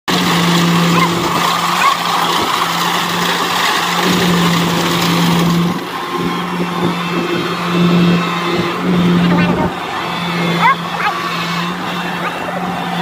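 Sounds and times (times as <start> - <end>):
diesel engine droning: 0.1 - 13.0.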